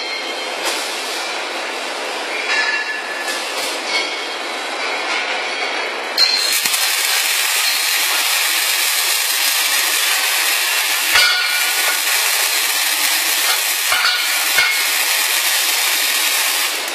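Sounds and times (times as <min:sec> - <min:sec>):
welding arc striking: 0:06.2 - 0:16.9
crackling hiss of arc welding: 0:06.4 - 0:16.9.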